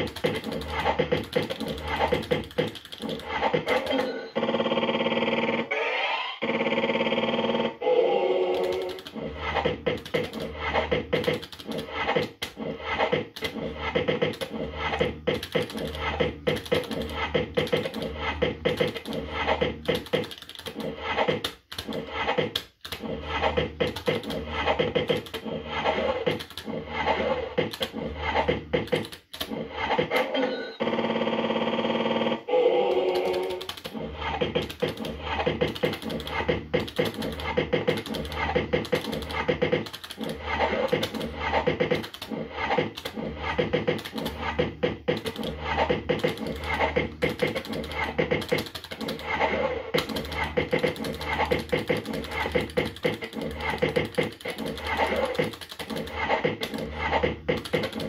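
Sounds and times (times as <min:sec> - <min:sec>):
electronic beeps and jingles: 0:03.8 - 0:04.9.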